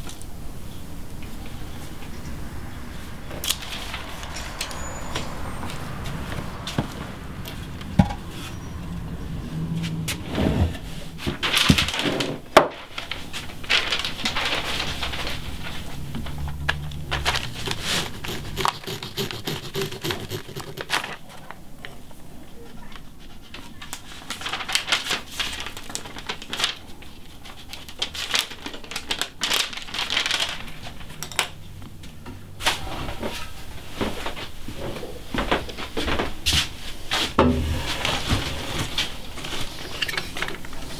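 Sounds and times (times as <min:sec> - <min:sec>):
wood scraping and rubbing: 0:13.4 - 0:21.3
pencil scratching on wood: 0:17.5 - 0:21.2.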